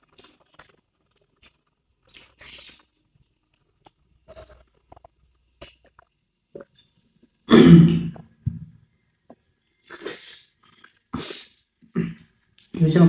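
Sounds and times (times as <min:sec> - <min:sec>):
person clearing throat: 0:07.5 - 0:08.2, 0:11.9 - 0:12.2.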